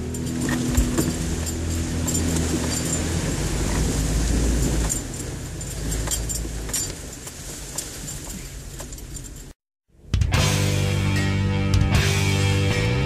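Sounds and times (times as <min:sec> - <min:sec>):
vehicle engine drone: 0:00.0 - 0:07.5
body and suspension rattling: 0:00.0 - 0:09.6.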